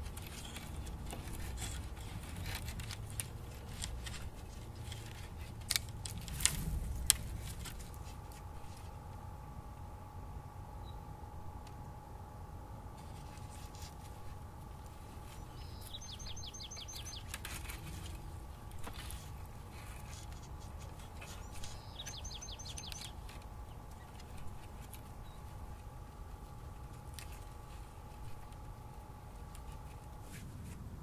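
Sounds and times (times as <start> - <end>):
sticks and brush rustling: 0.0 - 9.4, 12.9 - 31.0
songbird whistling: 15.4 - 17.3, 21.4 - 23.1.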